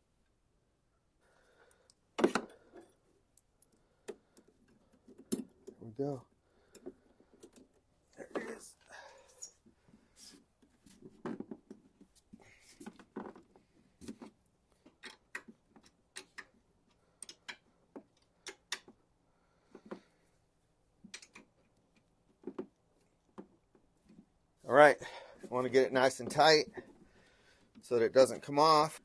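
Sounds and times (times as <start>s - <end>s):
metal hardware clicks and knocks: 5.0s - 5.8s, 14.9s - 16.6s.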